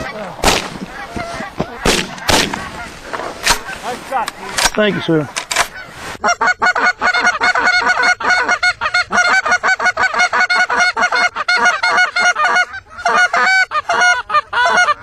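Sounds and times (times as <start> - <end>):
geese honking and clucking: 0.0 - 15.0.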